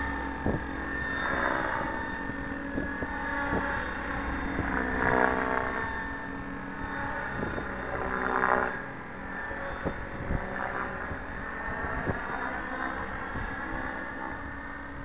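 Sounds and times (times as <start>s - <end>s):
wind buffeting microphone: 0.0s - 6.1s, 6.8s - 15.0s
helicopter rotor whine: 0.0s - 15.0s.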